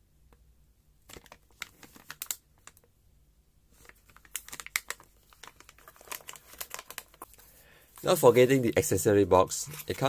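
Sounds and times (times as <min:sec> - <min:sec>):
plastic bag crinkling: 0:01.1 - 0:02.8, 0:03.8 - 0:08.8, 0:09.5 - 0:10.0.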